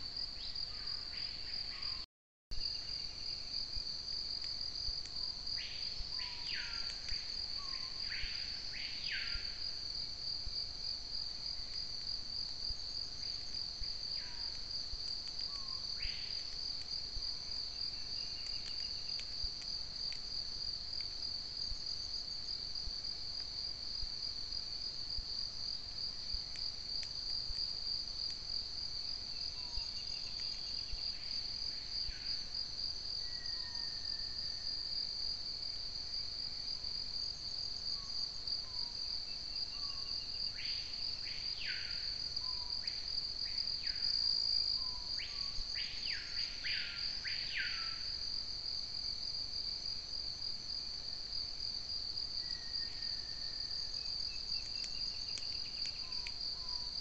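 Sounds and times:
insect chorus trilling: 4.8s - 10.0s, 13.2s - 19.7s, 28.9s - 35.0s, 35.7s - 57.0s.

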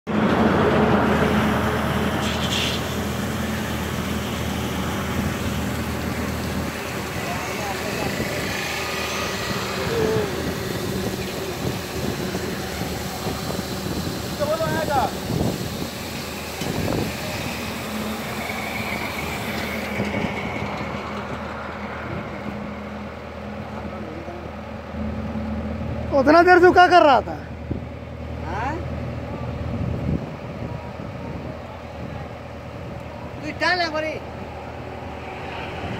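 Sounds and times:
heavy machinery engine running: 0.1s - 35.9s
faint thin squeal: 2.2s - 2.9s.

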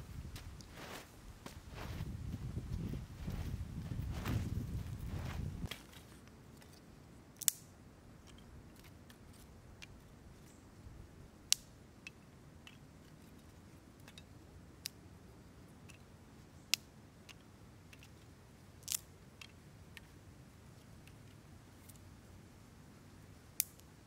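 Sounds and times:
wooden sticks clicking together: 7.4s - 9.2s, 11.5s - 13.4s, 15.8s - 16.0s, 16.7s - 18.2s, 18.8s - 20.1s.

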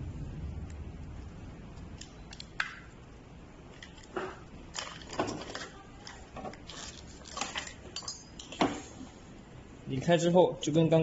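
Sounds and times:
rustling of rubber and wiring: 3.6s - 8.7s.

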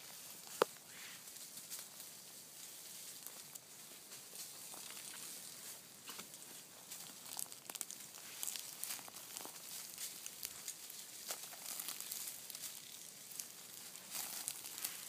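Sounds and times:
footsteps crunching dry leaves: 0.0s - 15.0s.

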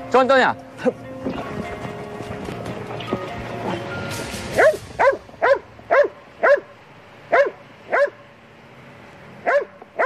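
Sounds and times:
dog barking: 4.6s - 6.7s, 7.3s - 8.2s, 9.4s - 10.0s.

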